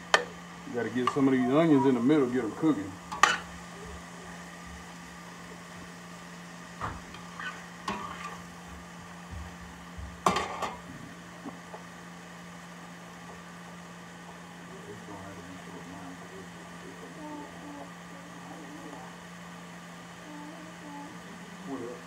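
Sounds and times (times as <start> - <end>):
vegetables sizzling in butter: 0.0 - 9.2
steady low hum: 0.0 - 22.0
metal spatula scraping pan: 7.4 - 8.4.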